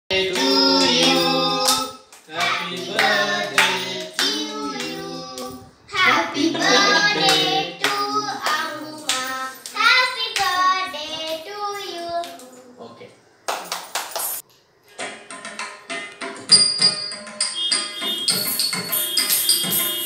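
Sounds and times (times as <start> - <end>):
people singing a birthday song: 0.1 - 13.0
people clapping: 0.3 - 5.5, 6.4 - 12.5, 13.5 - 14.4.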